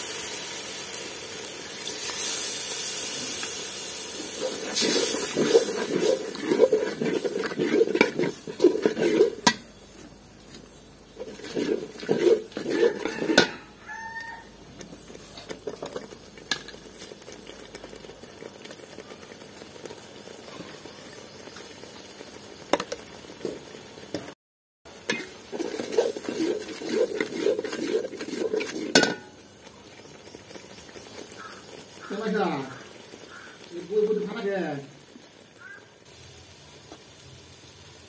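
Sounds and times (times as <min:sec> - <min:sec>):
ladle scraping in cooking pot: 0:04.3 - 0:09.7, 0:11.1 - 0:13.7, 0:25.0 - 0:29.3.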